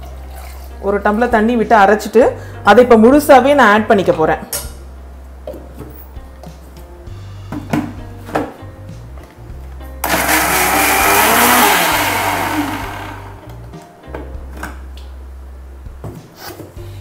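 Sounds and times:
mixer grinder running: 0:10.0 - 0:13.6.

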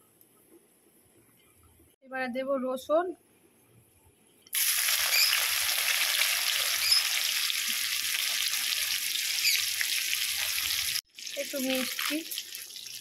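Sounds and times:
garlic sizzling in hot oil: 0:04.5 - 0:13.0.

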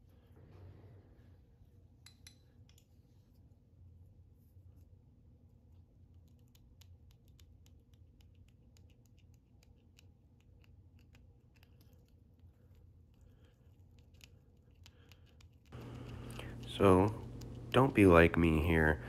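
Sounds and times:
low steady hum: 0:00.0 - 0:19.0
faint ticks of fingers working wire: 0:06.2 - 0:17.8.

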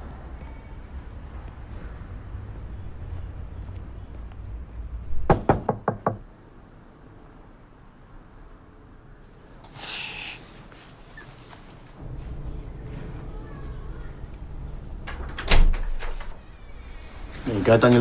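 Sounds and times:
knuckle knocking on door: 0:05.2 - 0:06.2.

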